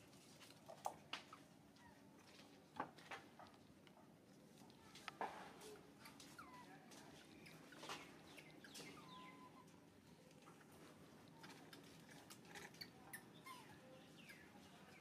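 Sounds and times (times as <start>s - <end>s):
animal high chirps: 8.3s - 9.7s.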